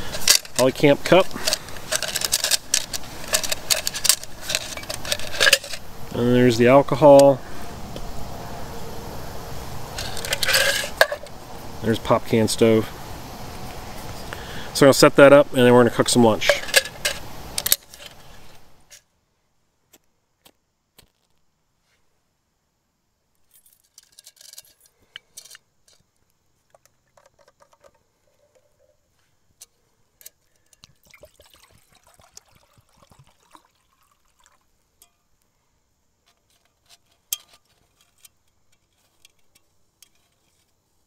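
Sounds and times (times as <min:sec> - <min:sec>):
water pouring into metal cup: 0:31.0 - 0:34.7.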